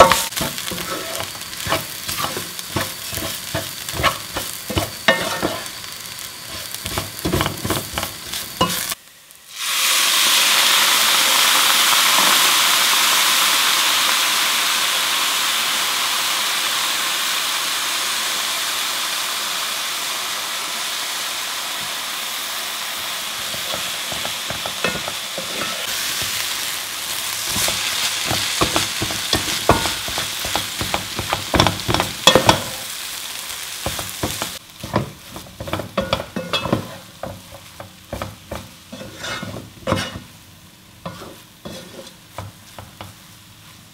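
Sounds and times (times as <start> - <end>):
wooden spatula scraping a pan: 0.0 - 5.7, 33.9 - 40.3, 41.0 - 43.8
liquid sizzling in hot oil: 0.0 - 43.9.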